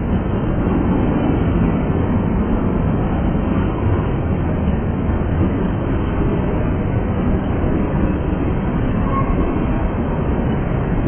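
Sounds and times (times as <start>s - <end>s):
freight train wheels rumbling on rails: 0.0s - 11.0s.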